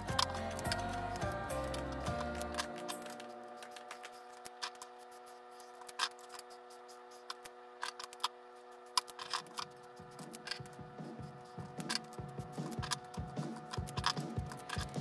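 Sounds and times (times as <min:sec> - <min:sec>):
faint background music chord: 0:00.0 - 0:05.7
marker caps clicking: 0:00.2 - 0:04.9.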